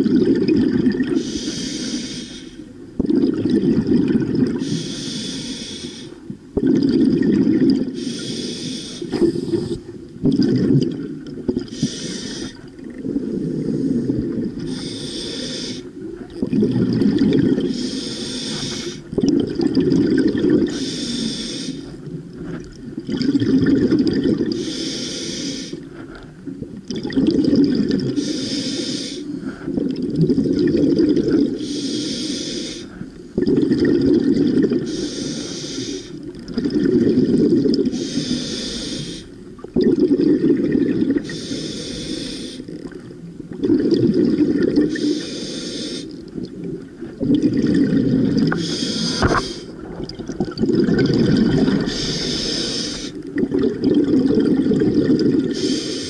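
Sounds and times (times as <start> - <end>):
exhaled bubbles gurgling: 0.0 - 56.0
regulator air hiss: 1.2 - 2.6, 4.6 - 6.2, 8.0 - 9.8, 11.7 - 12.6, 14.6 - 15.9, 17.7 - 19.1, 20.7 - 22.0, 24.6 - 25.8, 28.2 - 29.6, 31.6 - 33.0, 34.9 - 36.2, 37.9 - 39.4, 41.3 - 42.7, 44.9 - 46.2, 48.5 - 49.8, 51.8 - 53.2, 55.5 - 56.0.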